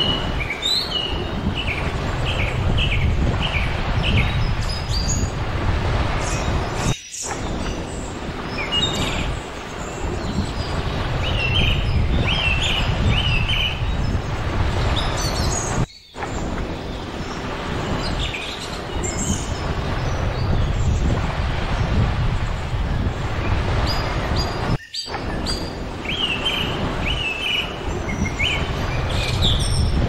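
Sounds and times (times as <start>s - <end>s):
small birds chirping: 0.0s - 5.4s, 6.2s - 30.0s
surf: 0.0s - 30.0s
wind: 0.0s - 30.0s.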